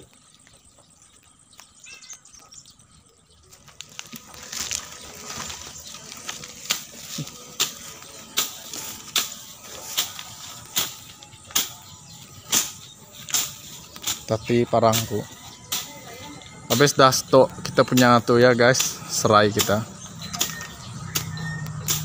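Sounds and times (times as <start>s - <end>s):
grass rustling: 0.0s - 22.0s
machete chopping into soil: 10.8s - 11.8s, 12.5s - 14.3s, 19.6s - 22.0s.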